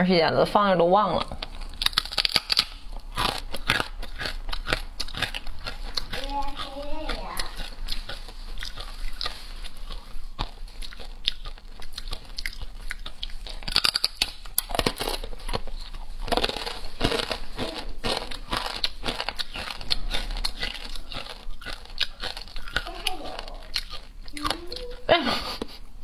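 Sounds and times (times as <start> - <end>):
crunchy chewing: 1.2 - 25.1.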